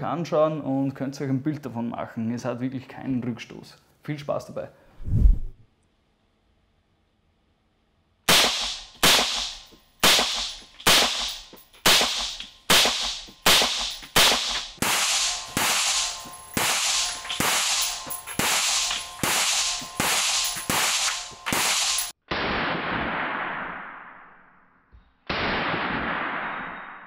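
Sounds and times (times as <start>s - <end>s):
rifle shots: 8.3s - 24.3s, 25.3s - 27.0s.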